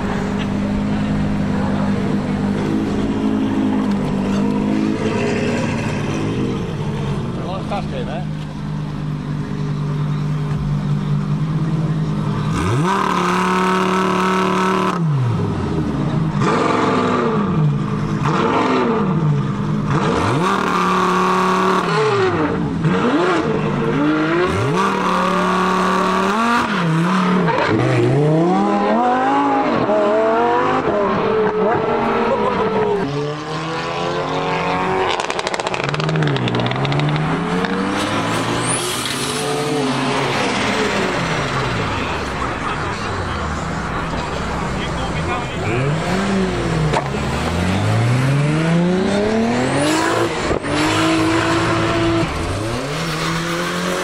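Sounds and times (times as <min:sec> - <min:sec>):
car engine revving hard: 0:12.4 - 0:42.2, 0:44.2 - 0:54.0.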